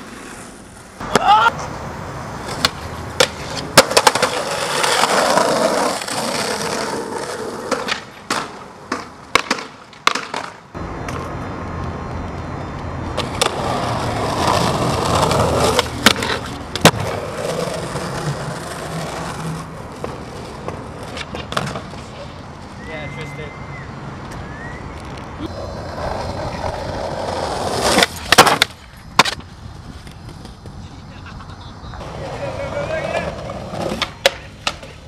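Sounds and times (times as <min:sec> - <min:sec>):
skateboard clacking: 0:00.0 - 0:12.4, 0:13.2 - 0:22.7, 0:25.5 - 0:35.0
skateboard wheels rolling on pavement: 0:00.0 - 0:35.0.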